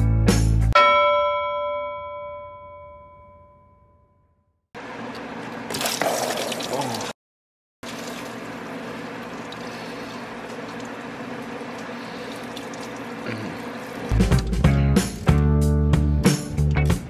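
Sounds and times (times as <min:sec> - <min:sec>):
coolant gushing and splattering: 0:05.7 - 0:07.2, 0:07.8 - 0:14.1.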